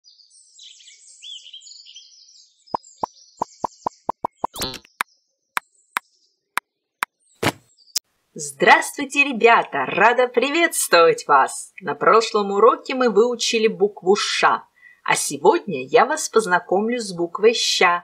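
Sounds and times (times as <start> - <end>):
cartoon bird chirping: 2.8 - 5.0
cartoon pops: 2.8 - 5.0, 7.4 - 7.6.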